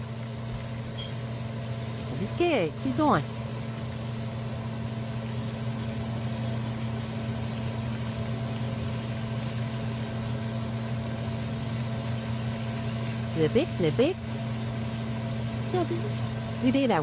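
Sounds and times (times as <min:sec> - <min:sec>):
steady low hum: 0:00.0 - 0:17.0
chicken deep-frying in oil: 0:03.6 - 0:16.6.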